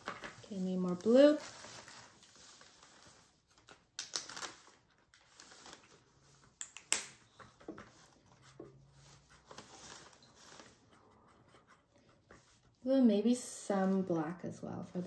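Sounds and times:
soft scraping of paint: 7.7 - 12.8.

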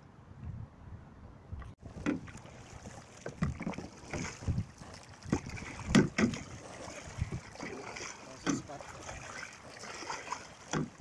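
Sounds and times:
kayak paddle splashing water: 1.8 - 11.0.

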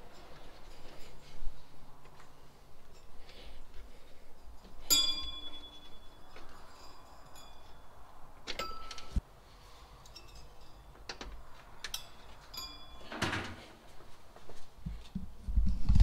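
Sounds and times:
cable rustling: 0.0 - 9.2
small metallic clinks: 4.3 - 9.2, 10.0 - 13.2.

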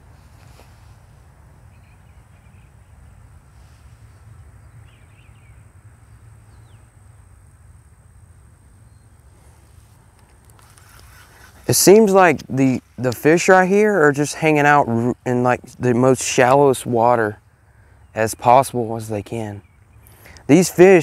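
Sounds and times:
faint bird chirps: 1.6 - 3.2.

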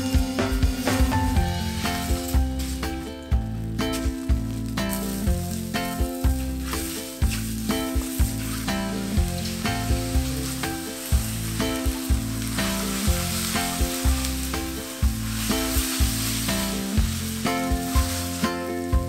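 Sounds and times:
noodles sizzling in hot wok: 0.0 - 19.0.

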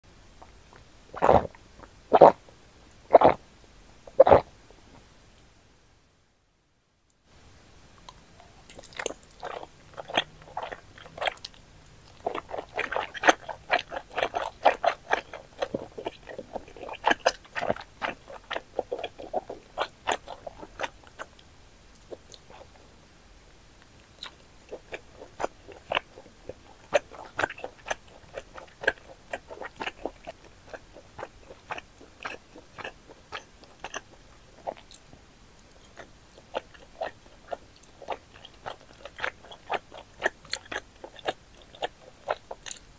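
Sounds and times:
person chewing noodles: 8.0 - 22.8, 23.9 - 42.9.

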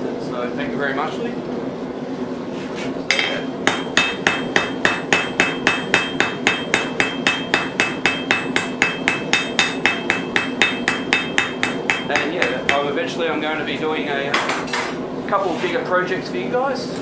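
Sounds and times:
hammer striking anvil: 3.1 - 13.0.

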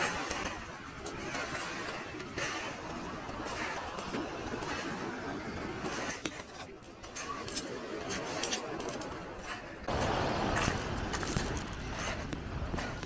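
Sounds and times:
footsteps on pebbles: 5.8 - 13.0
rushing noise: 9.8 - 13.0.

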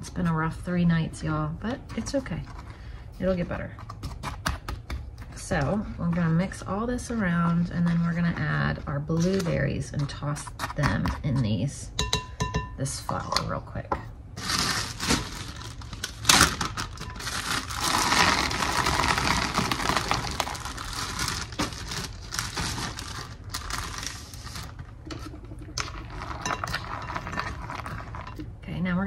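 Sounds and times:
berries rustling in flour: 14.4 - 25.0
plastic bag crinkling: 14.4 - 28.3.

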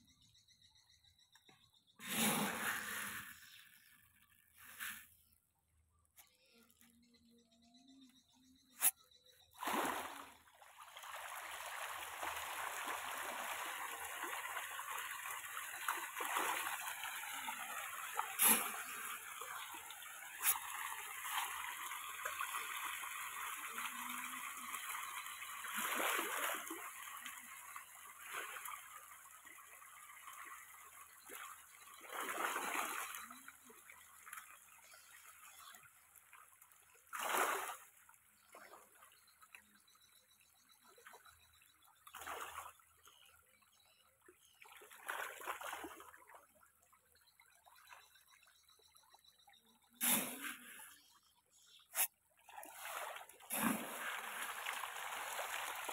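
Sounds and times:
sharp splashes: 2.0 - 3.9, 8.8 - 39.1, 42.0 - 42.9, 44.6 - 46.4, 51.9 - 55.9.

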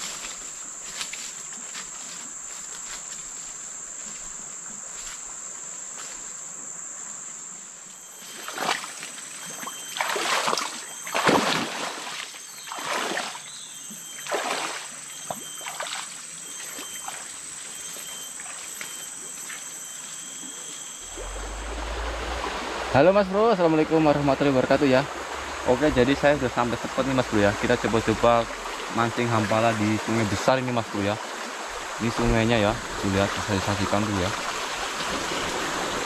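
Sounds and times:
high-pitched insect drone: 0.0 - 36.0
footsteps splashing through muddy water: 8.5 - 13.4.

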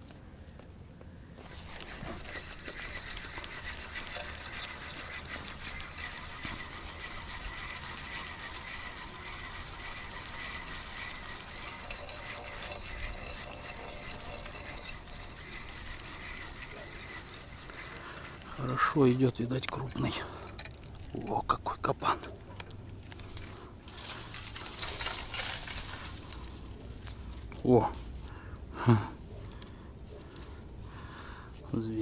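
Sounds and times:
fishing reel winding whine: 1.5 - 21.1
water noise: 1.5 - 22.9.

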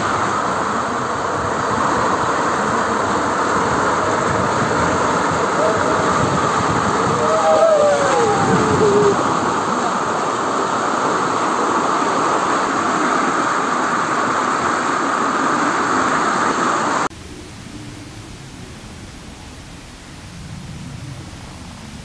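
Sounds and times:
water rushing down concrete channel: 0.0 - 17.1
faint steady hiss: 7.5 - 22.0.

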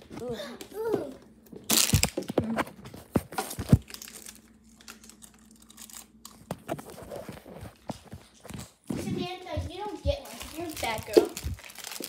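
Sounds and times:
plastic wrapper crinkling and tearing: 1.7 - 2.4, 3.4 - 7.9, 10.2 - 12.0.

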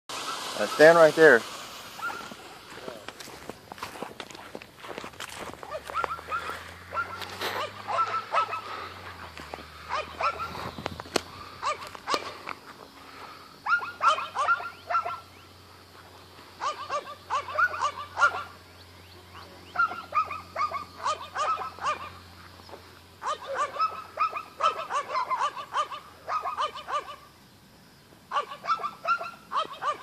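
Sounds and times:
dog barking and yipping: 2.0 - 2.4, 5.6 - 10.7, 11.6 - 12.4, 13.6 - 15.3, 16.6 - 18.6, 19.3 - 22.3, 23.2 - 27.3, 28.3 - 30.0.

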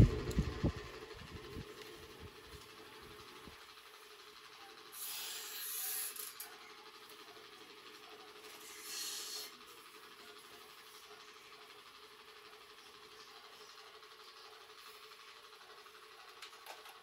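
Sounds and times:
faint steady hum: 0.0 - 3.7.

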